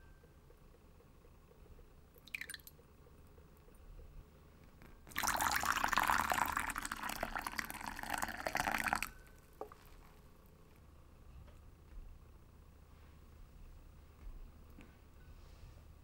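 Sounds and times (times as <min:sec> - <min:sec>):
small water drip: 0:02.2 - 0:02.8
water pouring into a ceramic bowl: 0:02.3 - 0:02.7, 0:05.1 - 0:09.2.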